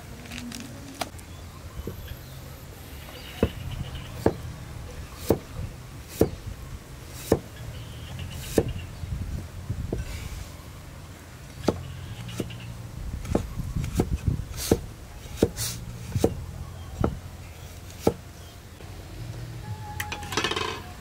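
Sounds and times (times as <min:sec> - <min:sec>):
cleaver chopping on wooden block: 0:05.2 - 0:05.4, 0:07.2 - 0:07.5, 0:08.4 - 0:08.8, 0:13.3 - 0:14.8, 0:15.4 - 0:16.4, 0:17.9 - 0:18.2.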